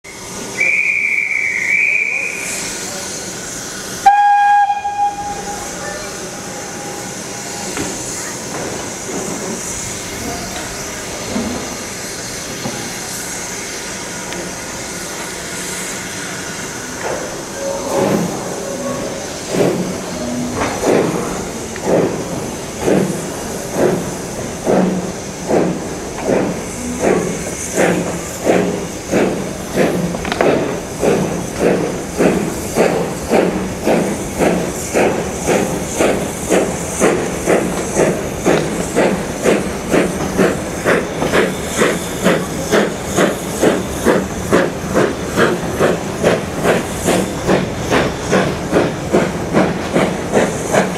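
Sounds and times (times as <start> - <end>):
steam hissing: 0.1 - 50.9
steam locomotive whistle: 0.5 - 2.6, 4.0 - 7.5.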